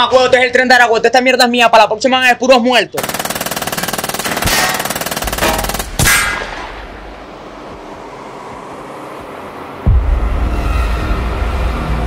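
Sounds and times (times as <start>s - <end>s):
automatic gunfire: 3.0s - 6.8s.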